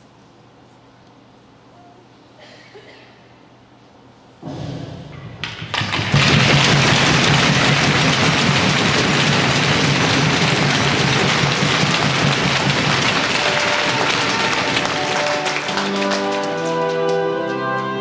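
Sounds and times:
crowd applauding: 5.4 - 18.0.

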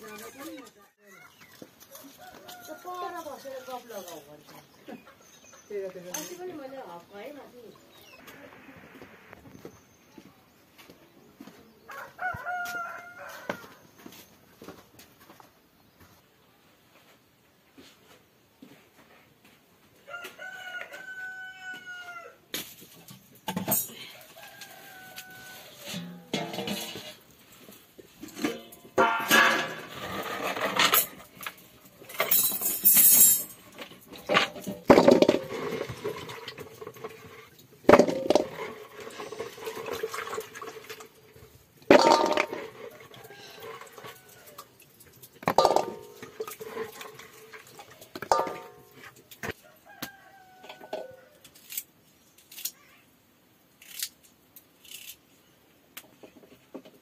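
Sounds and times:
metal pots and utensils clinking: 6.0 - 6.6, 23.1 - 24.2, 25.8 - 49.3.

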